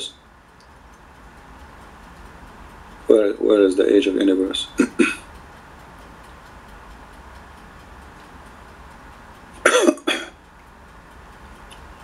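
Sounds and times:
steady low hiss: 0.0s - 12.0s
person coughing: 4.8s - 5.2s, 9.6s - 10.4s.

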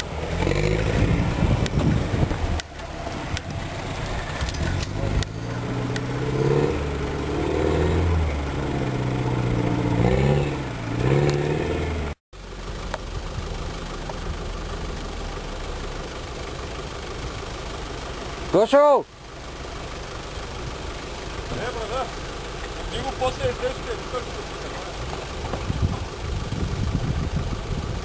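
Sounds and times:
engine revving under load: 0.0s - 12.2s.

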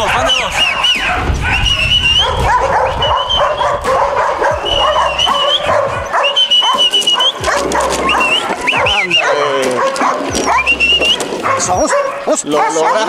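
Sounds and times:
puppies whining: 0.0s - 13.0s
puppies yelping: 0.0s - 13.0s.

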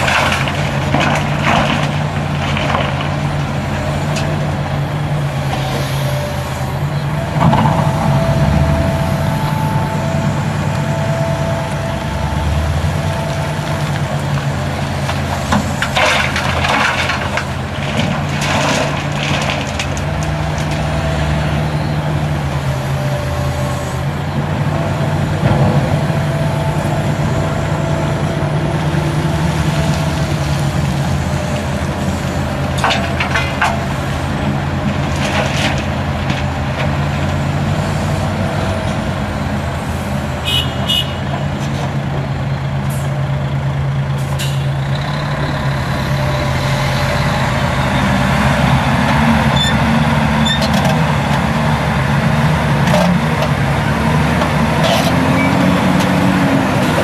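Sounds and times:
diesel engines running: 0.0s - 57.0s
truck pulling away: 0.0s - 57.0s
stones dropping into steel truck body: 15.8s - 20.6s.

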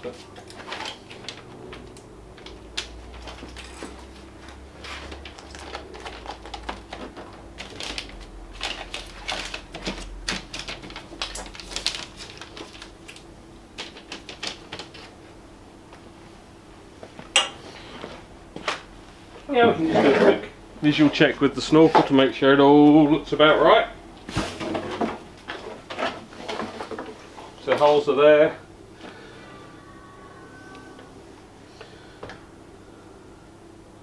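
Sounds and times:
paper and masking tape rustling: 0.0s - 13.2s.

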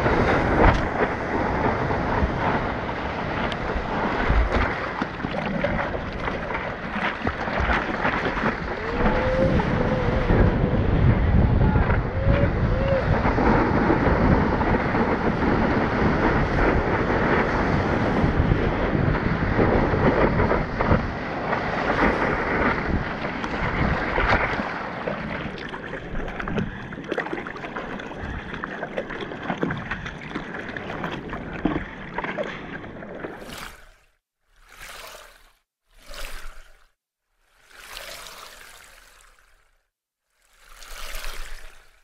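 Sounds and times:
water splashing around board: 0.0s - 10.8s, 19.4s - 42.0s
wind buffeting microphone: 0.0s - 27.1s.

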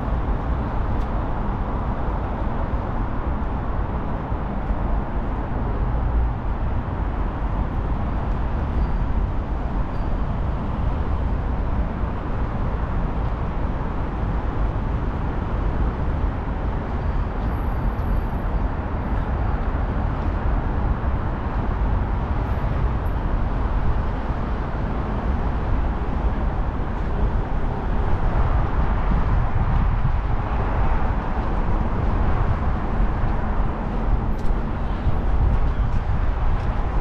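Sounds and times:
city street rumble: 0.0s - 37.0s.

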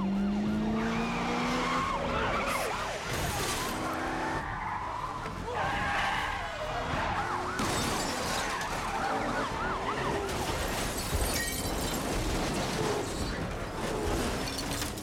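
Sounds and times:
police sirens: 0.0s - 14.4s
speeding cars: 0.0s - 15.0s
car crash impacts: 7.6s - 9.0s
glass shattering: 7.6s - 9.0s, 10.4s - 13.3s, 14.1s - 15.0s.

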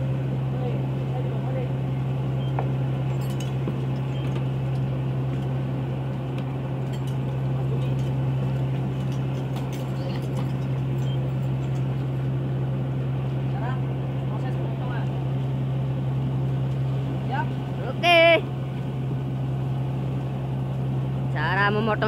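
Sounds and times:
boat machinery humming: 0.0s - 22.0s
light metallic clinks: 3.1s - 4.3s, 6.8s - 8.2s, 8.9s - 11.9s.

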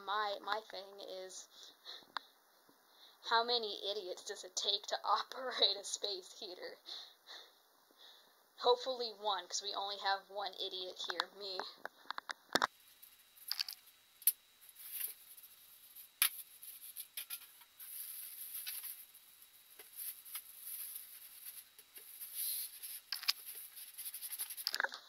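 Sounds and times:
plastic wrapping crinkling: 14.6s - 24.9s
cardboard rustling: 19.7s - 24.7s.

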